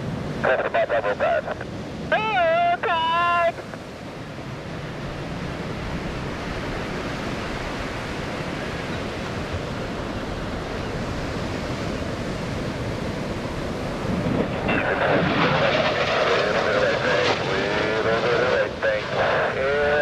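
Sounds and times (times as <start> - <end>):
ocean surf rushing: 0.0 - 20.0
wind on microphone: 4.7 - 18.6.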